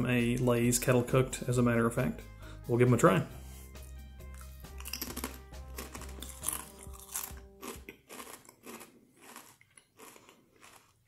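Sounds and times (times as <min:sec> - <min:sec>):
background music: 0:00.0 - 0:09.4
person chewing chips: 0:04.3 - 0:11.0
potato chips crunching: 0:04.3 - 0:11.0.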